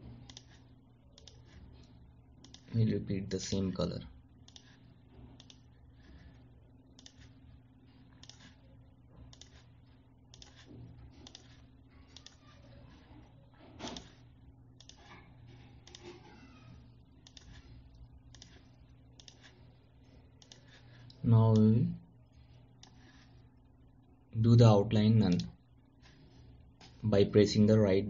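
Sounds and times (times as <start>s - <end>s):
low electrical hum: 0.0s - 28.0s
mouse and keyboard clicks: 0.2s - 0.6s, 1.2s - 2.7s, 4.4s - 4.8s, 5.4s - 5.6s, 7.0s - 7.3s, 8.2s - 8.6s, 9.3s - 9.6s, 10.3s - 12.6s, 13.8s - 14.2s, 14.8s - 15.2s, 15.8s - 16.2s, 17.2s - 17.6s, 18.3s - 19.5s, 20.4s - 21.2s.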